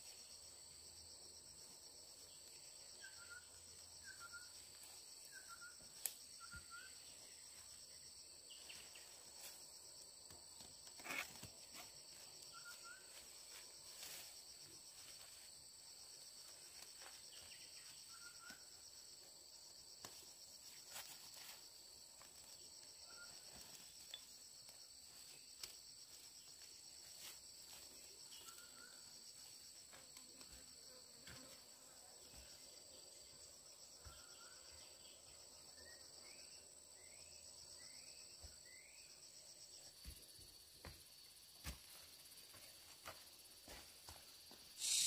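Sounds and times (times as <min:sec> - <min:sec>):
high-pitched insect chorus: 0:00.0 - 0:45.0
short chirps: 0:44.8 - 0:45.0.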